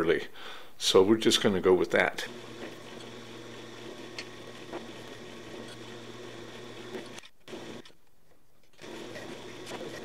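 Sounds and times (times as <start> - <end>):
drill press motor humming: 2.2 - 7.9, 8.8 - 10.0.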